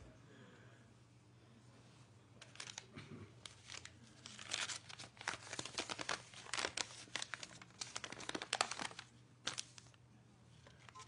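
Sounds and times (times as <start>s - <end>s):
crinkly material rustling: 2.4s - 10.0s.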